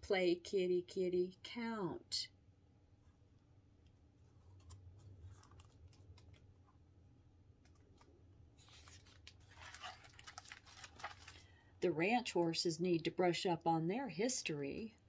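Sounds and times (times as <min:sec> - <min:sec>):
page turning: 0:04.4 - 0:06.4, 0:07.6 - 0:11.5.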